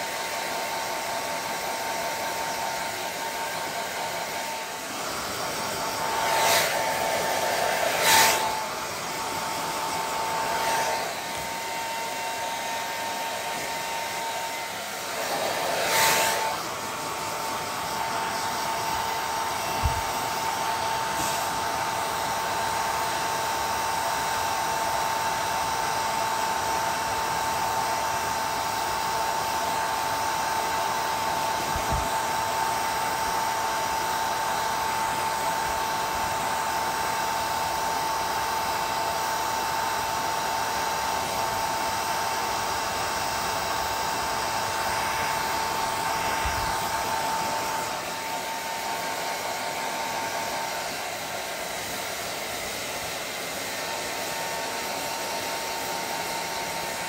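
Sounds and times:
hair dryer running: 0:00.0 - 0:57.0.

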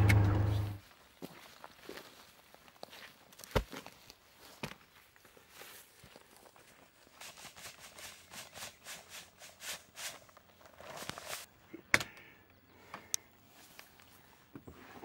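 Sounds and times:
footsteps through tall grass: 0:00.0 - 0:10.2.

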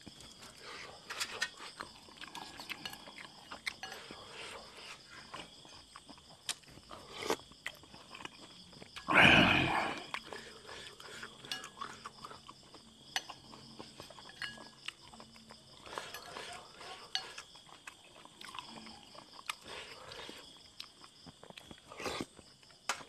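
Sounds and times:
chewing and slurping: 0:00.0 - 0:22.9
metal spoon scraping ceramic bowl: 0:15.9 - 0:17.4.

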